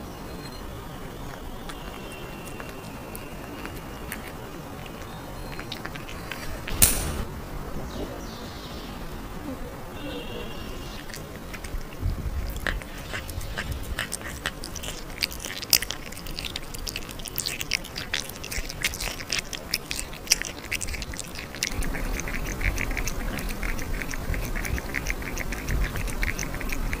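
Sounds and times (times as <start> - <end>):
cat chewing meat: 1.2 - 7.2, 10.8 - 27.0
cat lapping liquid: 1.2 - 7.2, 10.9 - 27.0.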